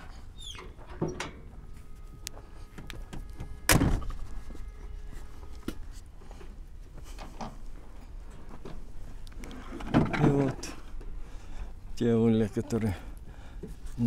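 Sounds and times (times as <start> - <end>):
clanks on steel truck bed: 0.6 - 1.7, 9.6 - 11.1.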